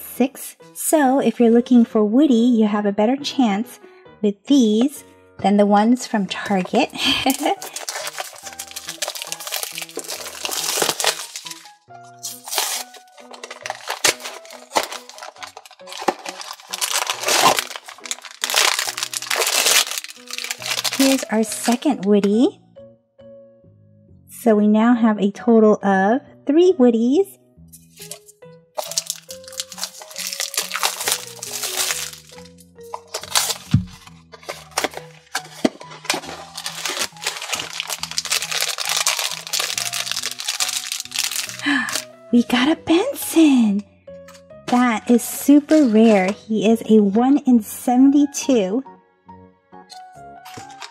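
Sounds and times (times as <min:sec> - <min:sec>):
background music: 0:00.0 - 0:50.9
foil bag crinkling: 0:06.6 - 0:22.0, 0:28.0 - 0:42.1, 0:50.5 - 0:50.9
box thump: 0:33.0 - 0:37.4.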